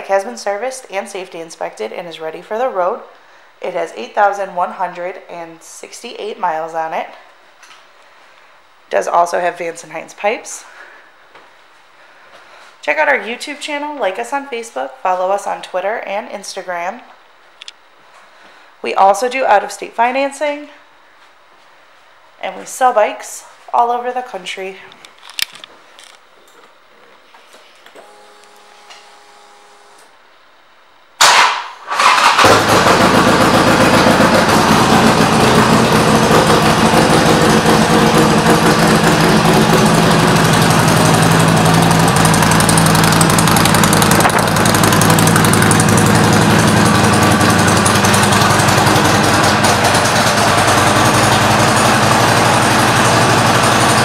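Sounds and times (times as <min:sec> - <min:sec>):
motorcycle engine starting and idling: 0:31.2 - 0:54.0.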